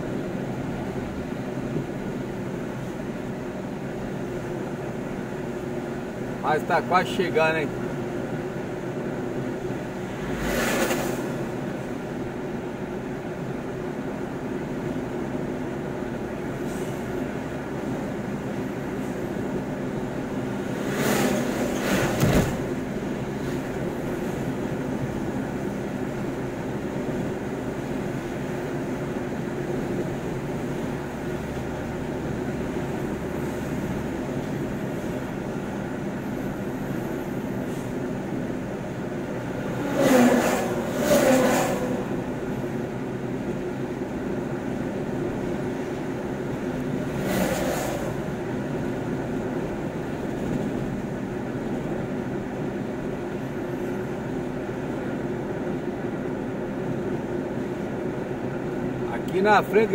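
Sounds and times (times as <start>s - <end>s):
road and engine noise in car cabin: 0.0s - 59.9s
truck passing whoosh: 8.2s - 12.6s, 20.3s - 25.1s, 37.5s - 43.4s, 45.7s - 50.8s.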